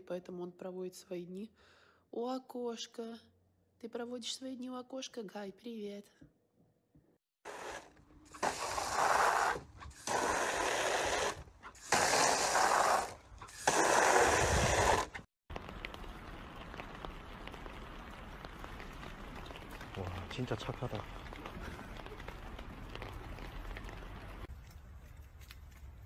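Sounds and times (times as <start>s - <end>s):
water jet into plastic pool: 7.4s - 15.3s.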